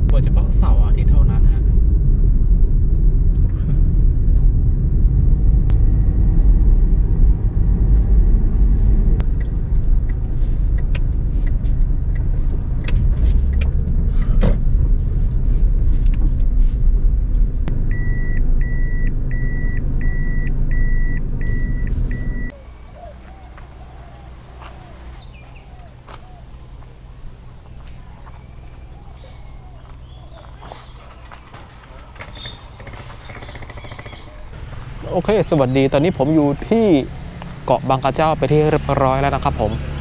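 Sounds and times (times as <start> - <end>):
engine and tyre rumble: 0.0 - 40.0
car warning chime beeping: 17.9 - 22.6.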